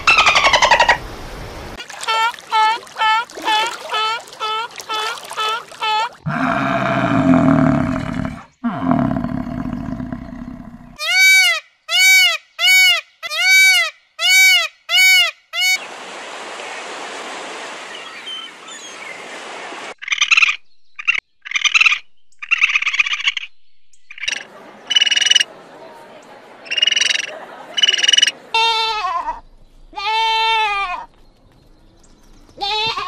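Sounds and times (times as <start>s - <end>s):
rustling outdoor noise: 0.0s - 11.0s, 21.0s - 33.0s
bison grunting: 6.3s - 11.0s
raccoon chittering: 24.1s - 25.5s, 26.7s - 28.3s.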